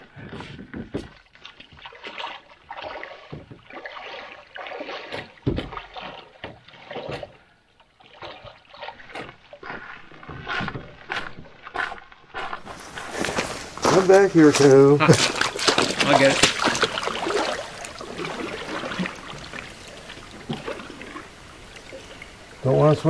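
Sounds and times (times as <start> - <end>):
person wading with splashes: 0.0 - 23.0
packs knocking against canoe hull: 5.1 - 7.4, 12.7 - 19.8.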